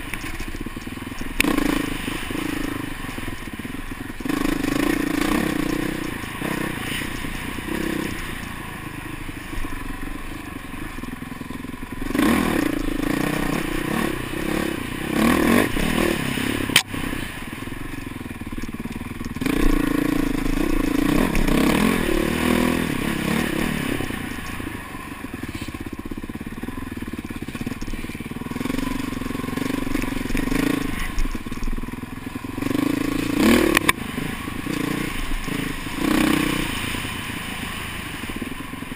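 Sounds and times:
dirt bike engine revving: 0.0 - 11.1, 11.8 - 38.9
sharp click: 16.7 - 16.9.

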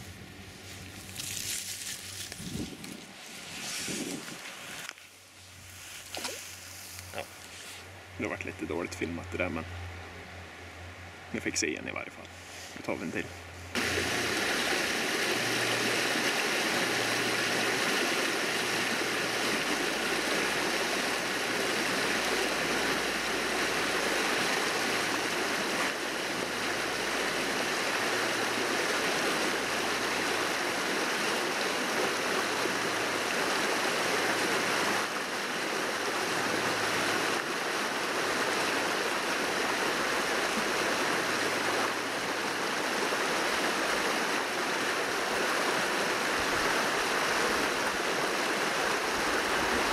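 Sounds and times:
stream rushing over rocks: 13.7 - 49.9.

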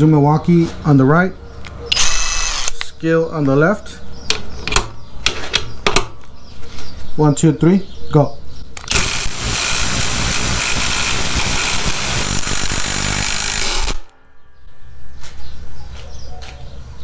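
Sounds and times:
impact drivers hammering: 8.8 - 14.1.

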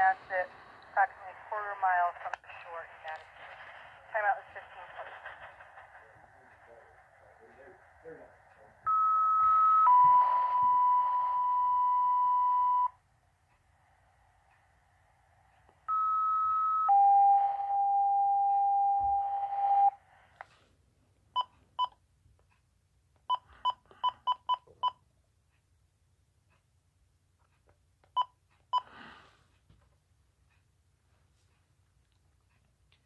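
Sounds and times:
radio hiss: 0.0 - 11.4
two-tone pager alert: 8.9 - 12.9, 15.9 - 20.0.

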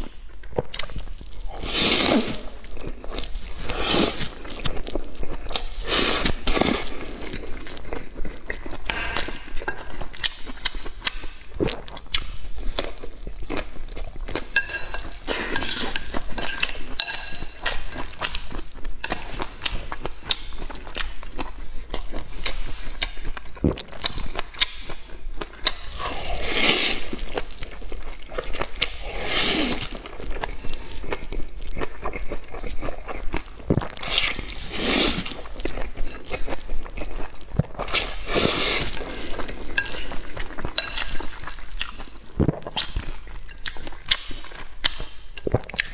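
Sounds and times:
noodles slurping: 1.5 - 4.4
wet chewing and mouth smacks: 2.6 - 26.0, 29.8 - 45.9.

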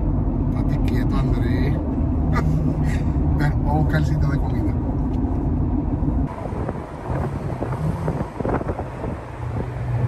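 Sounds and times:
vehicle rumble: 0.0 - 10.0
wind buffeting the microphone: 5.9 - 10.0.

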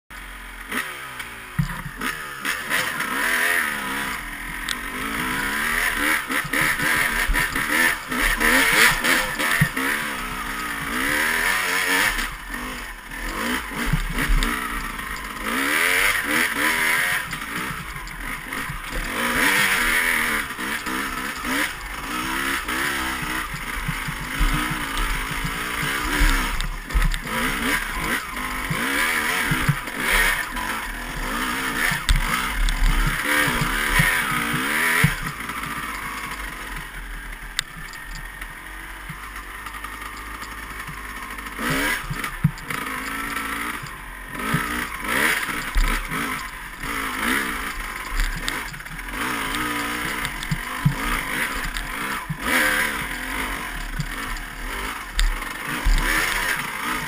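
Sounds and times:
dirt bike engine revving: 0.1 - 57.0.

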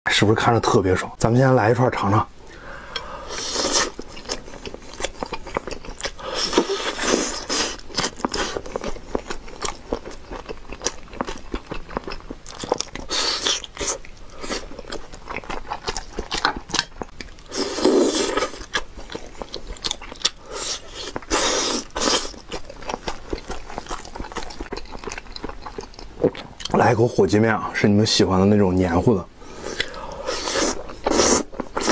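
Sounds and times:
close chewing with wet mouth sounds: 3.4 - 26.8, 29.5 - 31.9.

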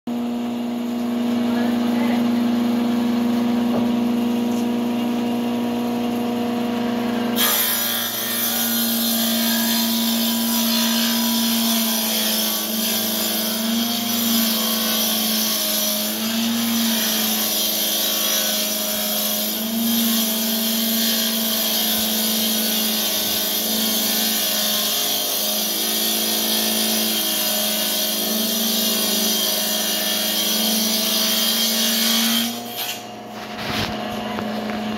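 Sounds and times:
saw motor hum: 0.1 - 34.9
saw cutting wood hiss: 7.4 - 33.1.

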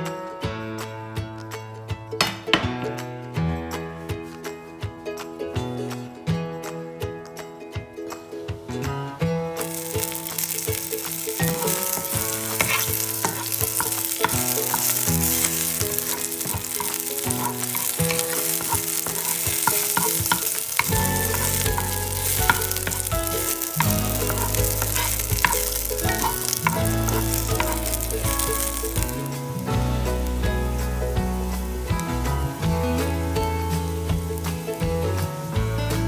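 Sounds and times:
wooden spoon scraping a pan: 9.6 - 29.3
oil sizzling in a frying pan: 9.6 - 36.0.

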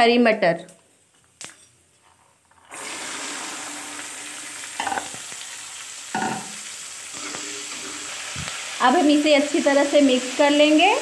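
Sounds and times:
peas frying in hot oil: 2.5 - 11.0.

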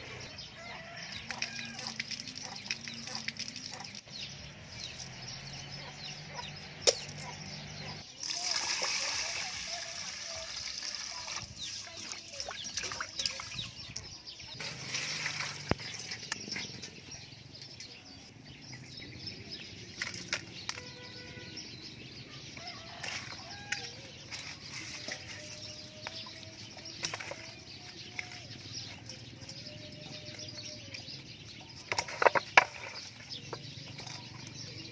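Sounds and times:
chickens and birds calling: 0.0 - 34.9
water pouring into steel bowl: 8.2 - 13.6, 14.6 - 16.1.

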